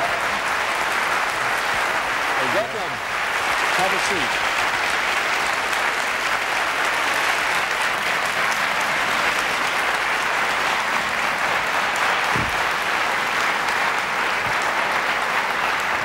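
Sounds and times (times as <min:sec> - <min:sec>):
audience applauding: 0:00.0 - 0:16.0
low thump: 0:12.3 - 0:12.6.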